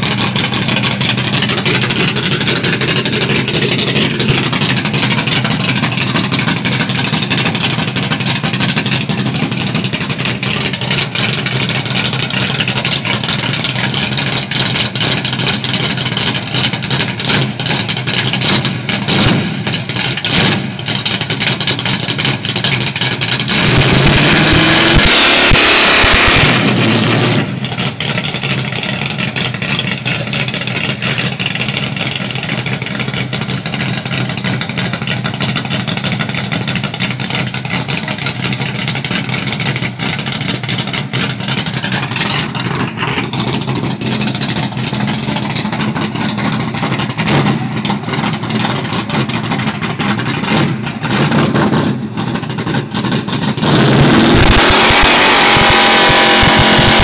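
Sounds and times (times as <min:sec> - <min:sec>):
truck engine rumbling: 0:00.0 - 0:57.0
loud rush of noise: 0:53.6 - 0:57.0.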